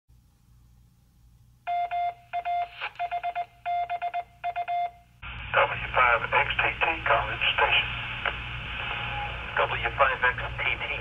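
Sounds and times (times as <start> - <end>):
morse code beeping tone: 1.7 - 5.1
radio receiver hiss: 5.3 - 11.0
voice over radio: 5.5 - 8.0, 9.6 - 11.0.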